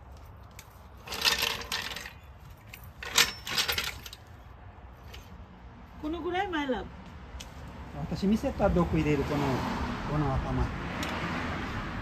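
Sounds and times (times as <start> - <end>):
car jack clanking: 1.0 - 4.2
metal car jack clinking: 1.0 - 4.3.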